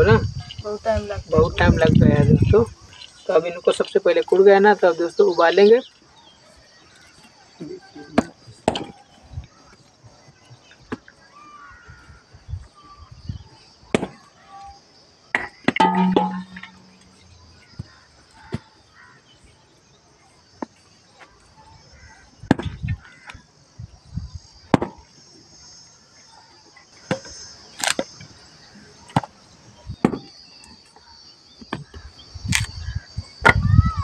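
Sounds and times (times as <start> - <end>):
hatchet chopping firewood: 15.4 - 17.0, 24.7 - 25.0.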